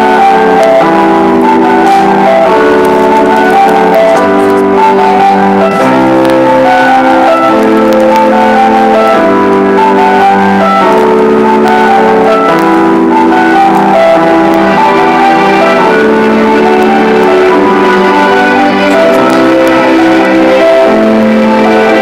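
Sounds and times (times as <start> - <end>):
sustained keyboard chords: 0.0 - 22.0.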